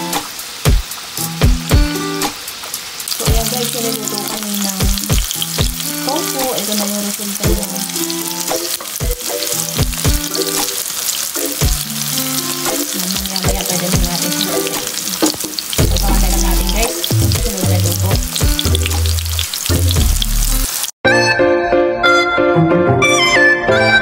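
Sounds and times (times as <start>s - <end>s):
background music with beat: 0.0s - 2.5s, 4.8s - 6.5s, 7.5s - 10.8s, 11.4s - 24.0s
tofu sizzling in oil: 0.0s - 21.0s
spatula turning food: 3.1s - 20.9s.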